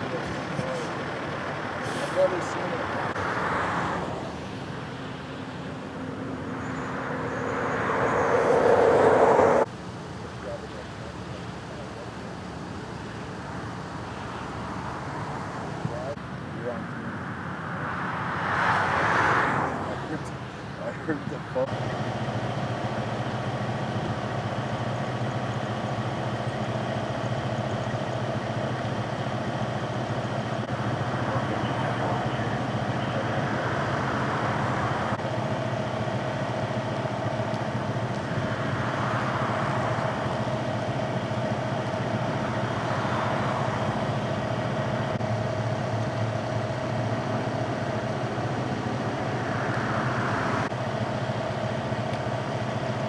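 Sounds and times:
idling vehicle engines hum: 0.0s - 53.0s
rushing noise: 1.8s - 10.0s, 46.7s - 50.7s.

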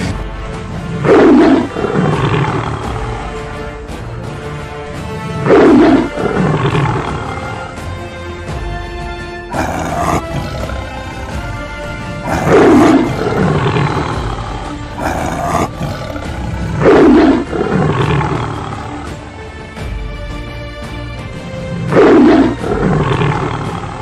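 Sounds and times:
background music: 0.0s - 24.0s
big cat roars: 0.8s - 3.6s, 5.3s - 8.0s, 9.5s - 19.3s, 21.5s - 24.0s.

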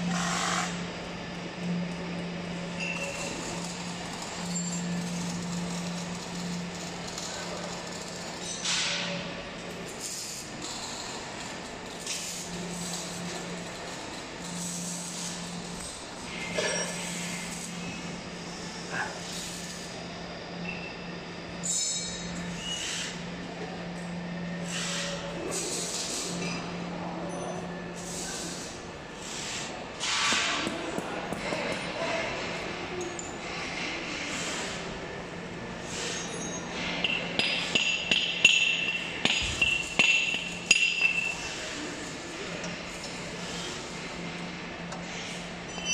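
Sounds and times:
machinery humming: 0.0s - 45.9s
hammer striking steel: 37.0s - 41.4s.

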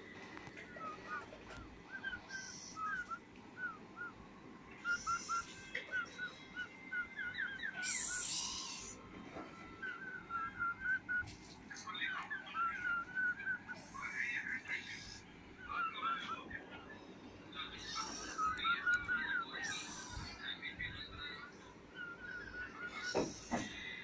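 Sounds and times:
baby mongoose chirping: 0.6s - 3.2s, 4.7s - 9.0s, 17.6s - 23.5s
mongoose hissing: 2.1s - 3.1s, 7.7s - 9.0s, 19.6s - 20.4s.

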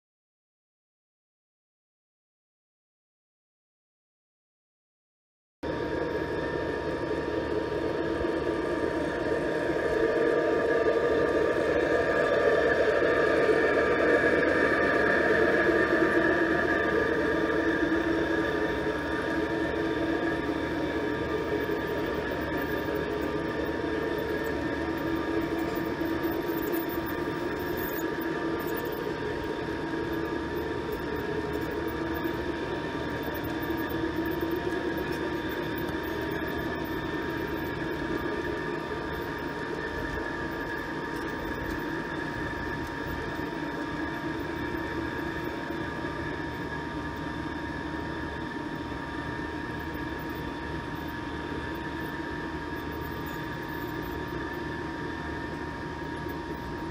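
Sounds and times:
model train wheels humming: 6.1s - 48.0s.

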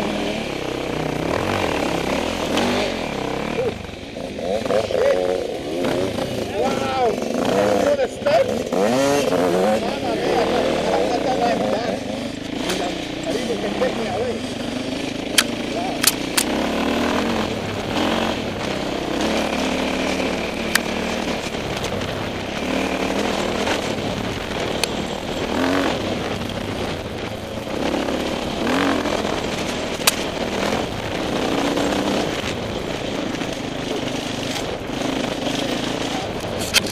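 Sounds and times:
dirt bike engine revving: 0.0s - 36.9s
sharp clicks: 15.3s - 16.6s, 29.9s - 30.3s.

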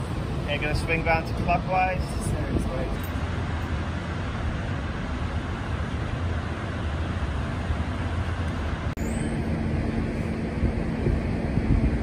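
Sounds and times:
ship machinery rumble: 0.0s - 12.0s
steady hum: 0.0s - 12.0s.

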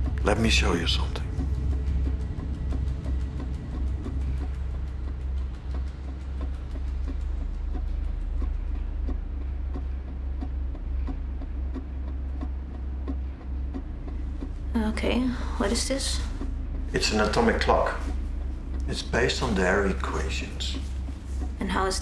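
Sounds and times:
deep steady drone: 0.0s - 22.0s
regular ticking: 0.0s - 22.0s.

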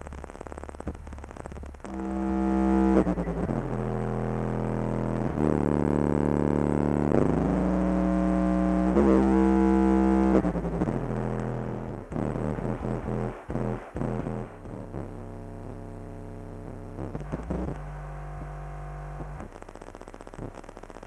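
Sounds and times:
music with deep bass: 0.0s - 21.0s
low hum with clicks: 16.6s - 21.0s.

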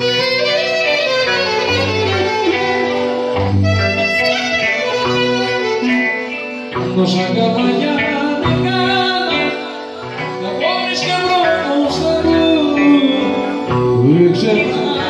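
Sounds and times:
folk dance band with clarinet: 0.0s - 6.7s.

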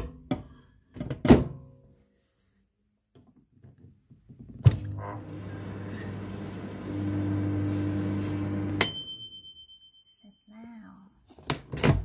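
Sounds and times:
microwave humming: 4.7s - 9.0s
timer bell ding: 8.8s - 10.5s.

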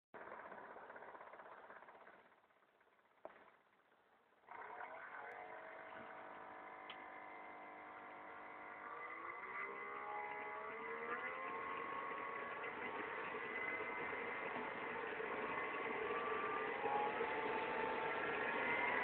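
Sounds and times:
jet engine whine: 5.5s - 19.0s
click: 6.8s - 7.0s.

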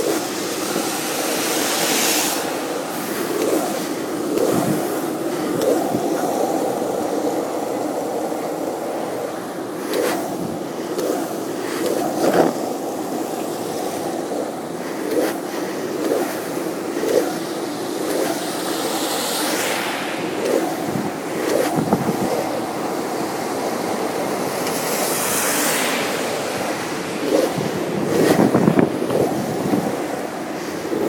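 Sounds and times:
hiss: 0.0s - 8.8s, 9.8s - 22.7s
skateboard clacking: 0.0s - 19.6s, 26.3s - 31.0s
skateboard wheels rolling on wet pavement: 0.0s - 31.0s.

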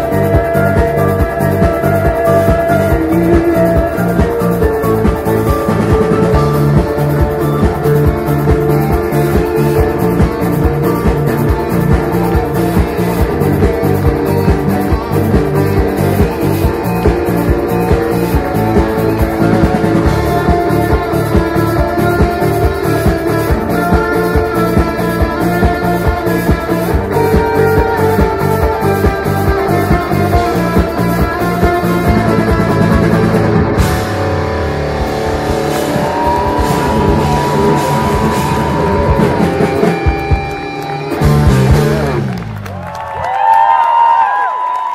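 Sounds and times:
steady drum beat: 0.0s - 42.6s
electric guitar: 0.0s - 44.9s.

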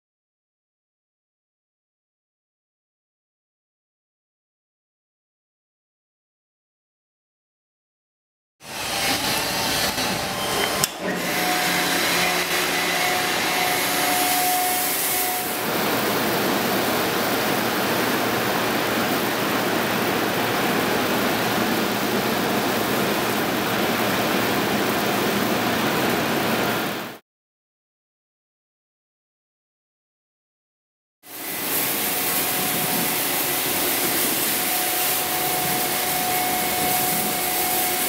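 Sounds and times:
machine whine: 8.6s - 27.2s, 31.3s - 38.0s
car wash water spraying: 31.4s - 38.0s.

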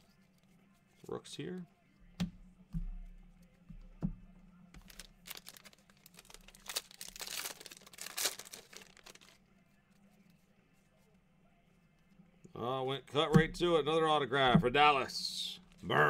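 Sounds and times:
wrapper crinkling and tearing: 4.8s - 9.4s.

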